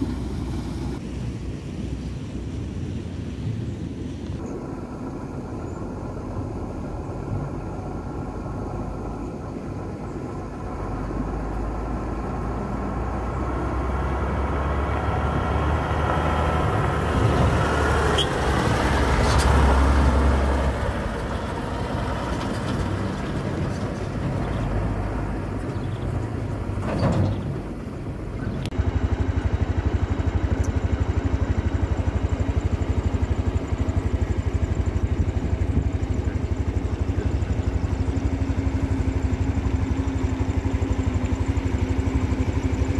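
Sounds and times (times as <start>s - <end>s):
truck engine drone: 0.0s - 42.9s.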